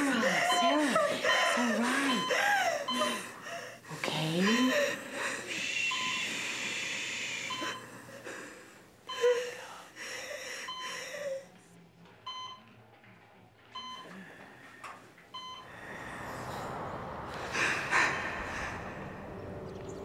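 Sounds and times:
patient monitor alarm beeps: 0:00.0 - 0:08.3, 0:09.0 - 0:11.5, 0:12.2 - 0:12.8, 0:13.7 - 0:14.4, 0:15.3 - 0:15.7
rushing noise: 0:15.6 - 0:20.0.

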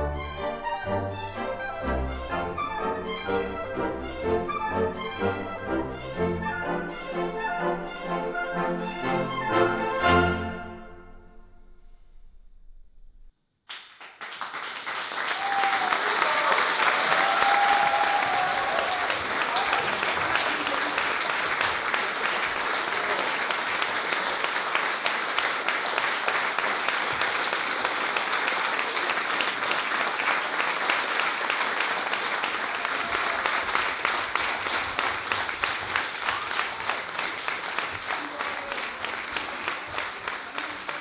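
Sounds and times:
audience applauding: 0:13.7 - 0:41.0.

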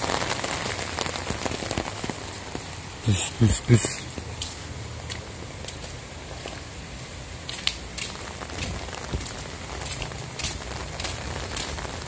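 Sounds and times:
light ticks and crackles: 0:03.8 - 0:06.7, 0:07.4 - 0:12.0.

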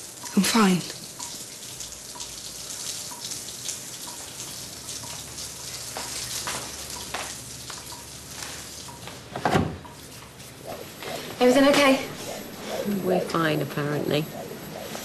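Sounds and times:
tap water running into basin: 0:00.0 - 0:09.2.

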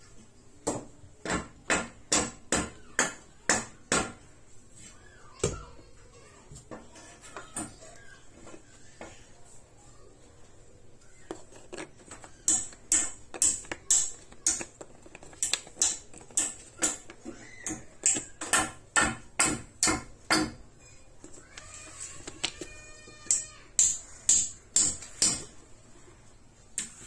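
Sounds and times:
plastic cap clicking: 0:11.3 - 0:18.3, 0:21.2 - 0:23.4.

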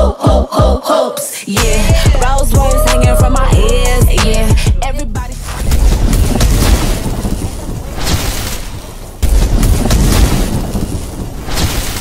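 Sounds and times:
deep boom: 0:01.6 - 0:11.7
crackling rumble: 0:03.3 - 0:12.0.

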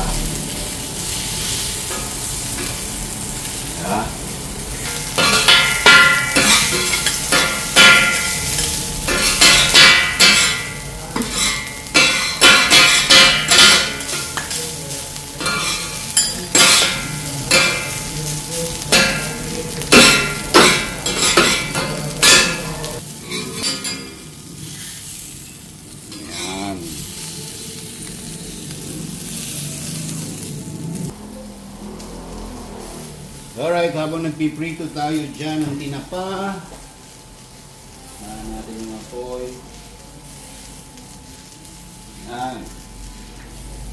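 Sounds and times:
food sizzling on griddle: 0:00.0 - 0:43.9
metal spatulas scraping griddle: 0:04.8 - 0:14.6, 0:15.4 - 0:18.1, 0:18.9 - 0:25.2, 0:26.1 - 0:27.3.

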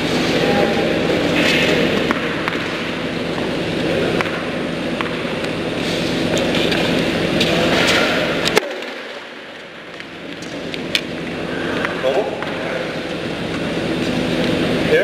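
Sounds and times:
steady humming background: 0:00.0 - 0:15.0
tennis balls hit by rackets: 0:01.4 - 0:03.5, 0:04.1 - 0:05.6.

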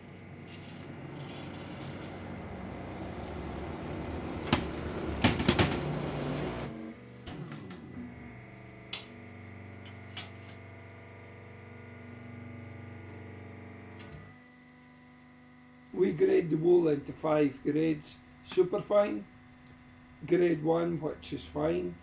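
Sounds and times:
baling press running: 0:00.0 - 0:07.9
steady hum: 0:00.0 - 0:22.0
motor winding down: 0:00.4 - 0:14.2.

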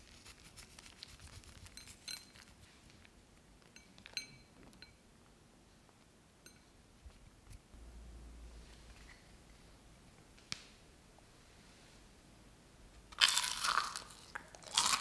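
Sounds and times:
light clinks on ceramic plate: 0:03.8 - 0:05.0.

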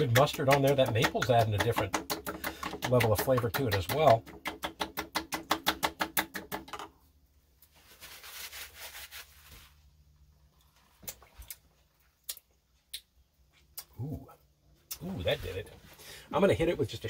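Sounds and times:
soft hiss: 0:07.1 - 0:17.0.

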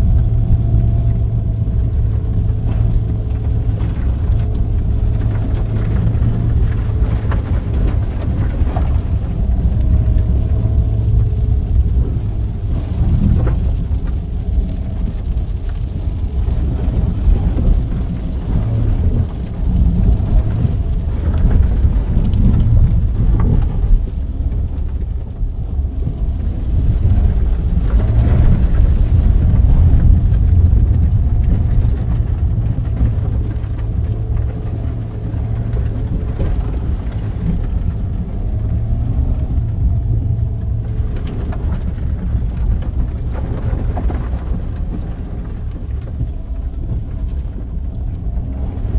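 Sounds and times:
car driving over rough dirt track: 0:00.0 - 0:48.9.

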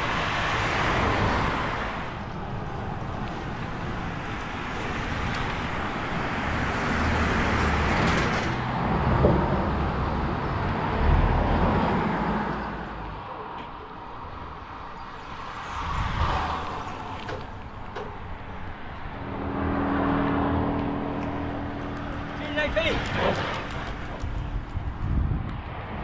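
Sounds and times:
background road traffic: 0:00.0 - 0:26.0
bicycle passing with road noise: 0:00.0 - 0:26.0.

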